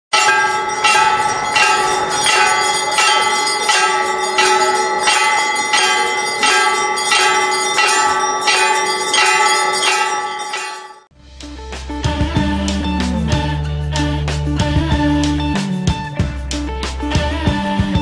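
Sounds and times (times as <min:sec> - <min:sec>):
large bell ringing: 0:00.1 - 0:11.1.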